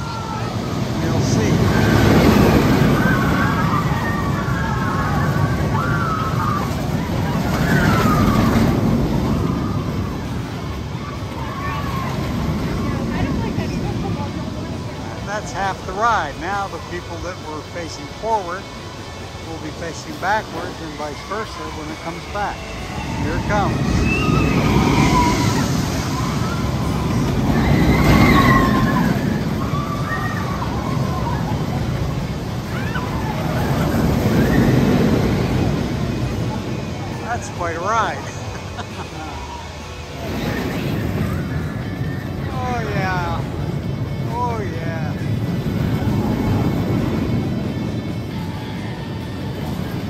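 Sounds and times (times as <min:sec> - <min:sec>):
roller coaster rumbling: 0:00.0 - 0:50.0
high wails: 0:22.6 - 0:31.8.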